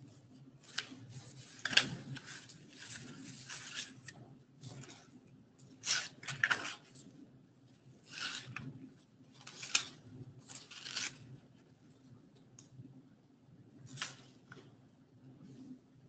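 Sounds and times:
rustling and rubbing noises: 0.0 - 12.1.

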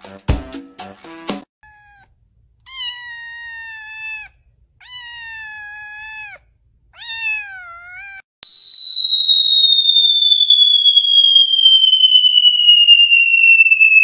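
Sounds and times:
kitten meowing: 1.6 - 8.2.

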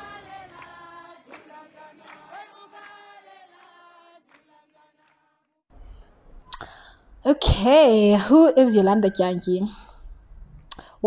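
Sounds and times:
group of voices singing: 0.0 - 5.3.

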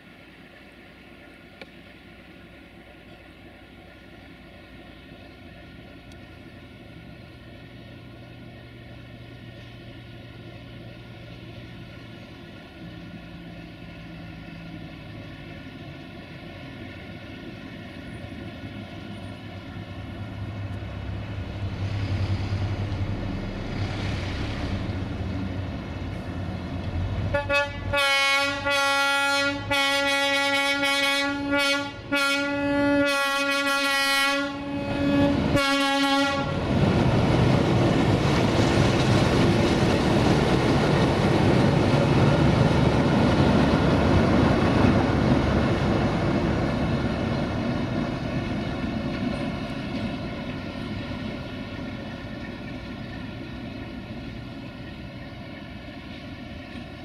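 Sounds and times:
locomotive horn blasts: 27.3 - 36.6.

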